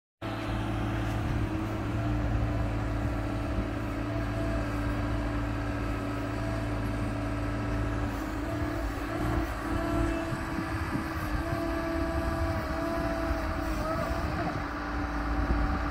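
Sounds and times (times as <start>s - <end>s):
excavator diesel engine running: 0.2s - 15.9s.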